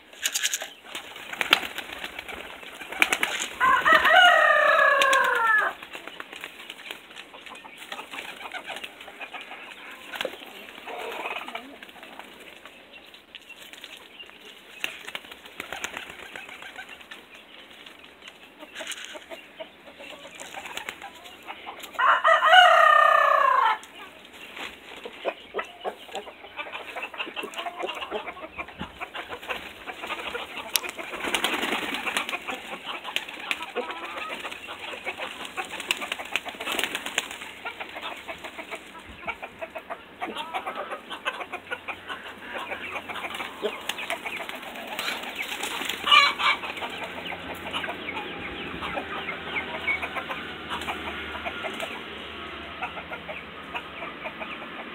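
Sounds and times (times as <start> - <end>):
pigeons flapping wings: 0.2 - 9.1, 14.8 - 17.2, 20.3 - 21.2, 29.4 - 38.0, 43.3 - 47.0.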